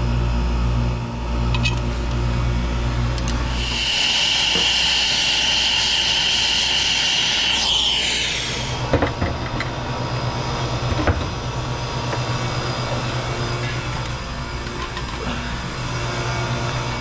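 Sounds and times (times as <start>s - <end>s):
brazing torch hissing and whistling: 3.5s - 9.5s.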